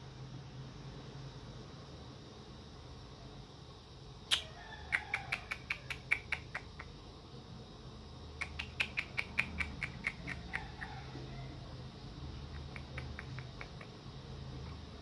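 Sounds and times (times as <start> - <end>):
animal chirping clicks: 4.3 - 6.9, 8.4 - 10.9, 12.5 - 14.0.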